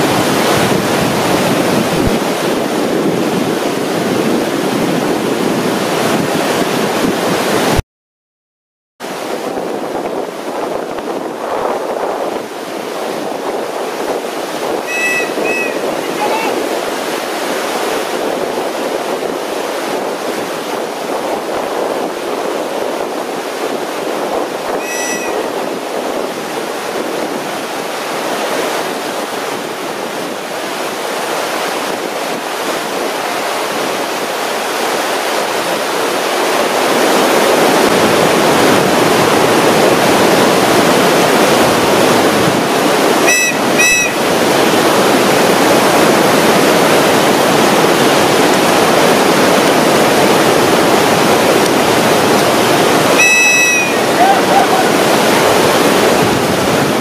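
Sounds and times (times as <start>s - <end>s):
river whitewater rushing: 0.0s - 7.8s, 9.0s - 57.0s
short high chirp: 14.9s - 15.9s, 24.8s - 25.5s, 43.3s - 44.2s, 53.2s - 54.1s.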